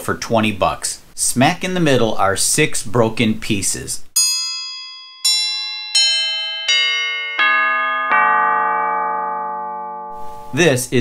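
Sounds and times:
descending bell-like chimes: 4.2s - 11.0s.

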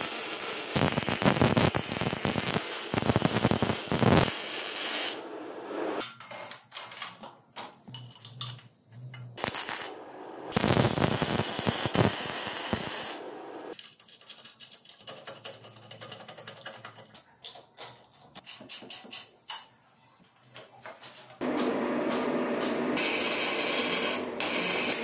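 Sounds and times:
arc welding crackle: 0.0s - 5.2s, 9.4s - 13.7s, 23.0s - 25.0s.

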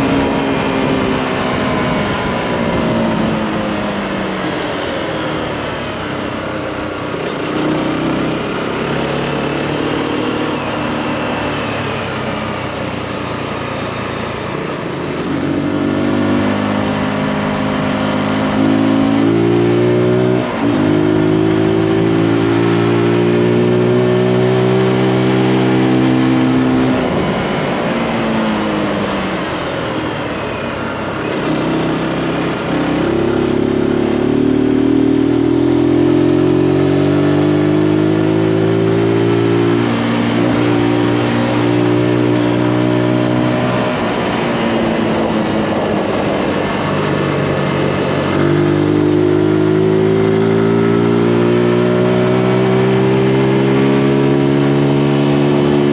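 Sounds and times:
wind rushing over microphone: 0.0s - 5.1s, 14.6s - 33.9s, 38.1s - 55.9s
motorcycle engine revving: 0.0s - 55.9s.

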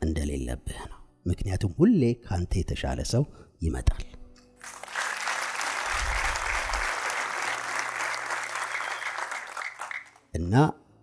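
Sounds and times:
audience applauding: 4.6s - 10.2s.

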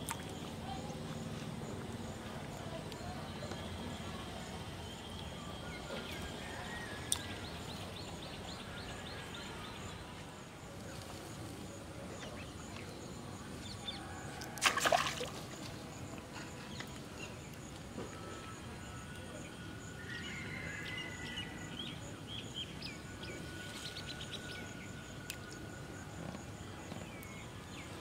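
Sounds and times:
water splashing: 14.6s - 15.7s.

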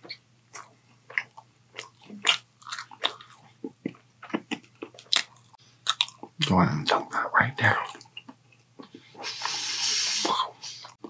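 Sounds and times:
mouth chewing smacks: 0.0s - 6.4s.

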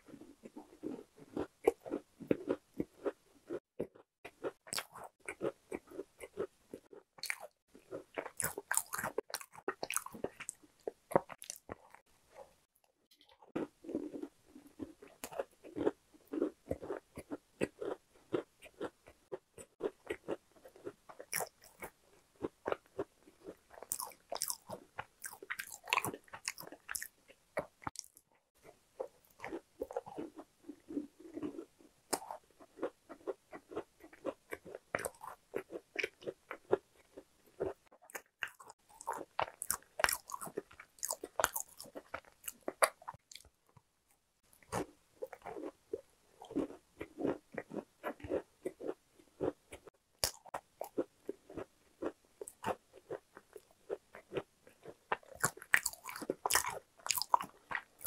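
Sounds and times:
chewing crunchy cookie: 0.0s - 58.0s.

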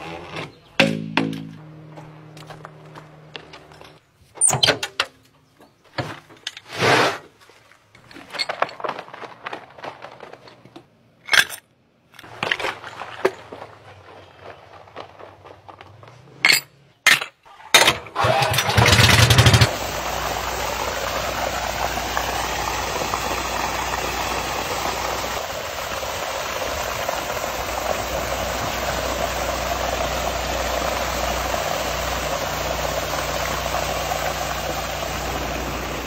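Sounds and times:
small engine running loudly: 18.2s - 36.0s.

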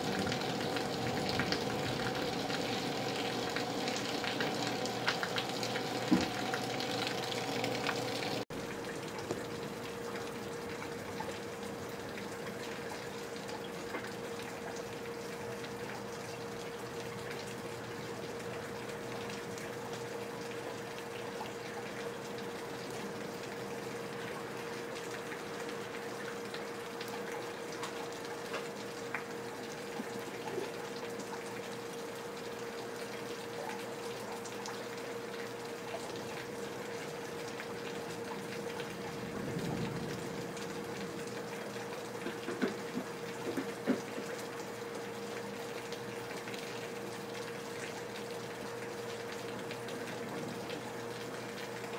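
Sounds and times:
water drips clicking: 0.0s - 11.5s
faint hum: 0.0s - 25.7s
steady rain: 0.0s - 51.9s
water pouring from gutters: 0.0s - 51.9s.

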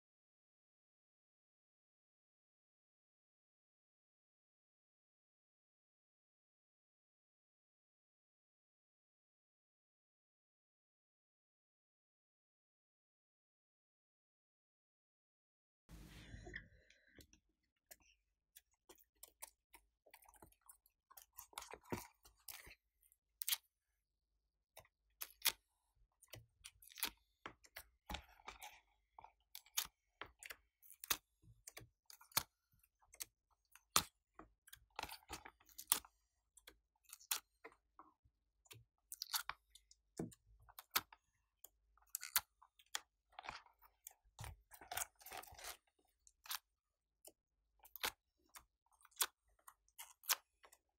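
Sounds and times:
sticky clicks and crackles of slime: 33.1s - 37.6s, 38.7s - 41.2s, 42.0s - 46.7s, 47.8s - 50.8s.

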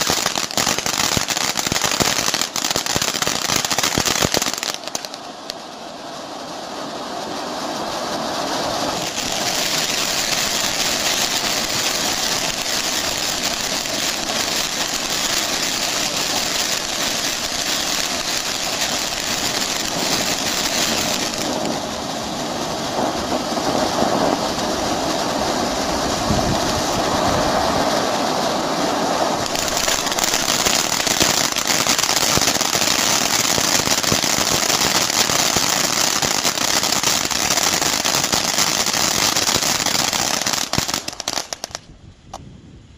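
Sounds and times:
firework fountain hissing: 0.0s - 42.4s.

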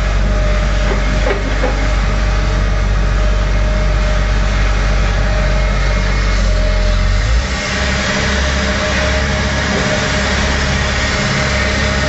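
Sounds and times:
excavator diesel engine rumbling: 0.0s - 12.0s.

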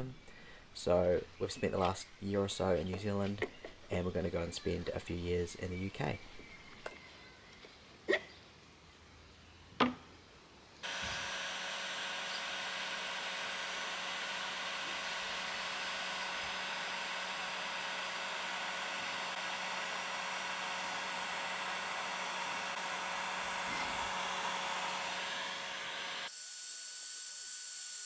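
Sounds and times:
heat gun blowing hot air: 10.8s - 28.0s.

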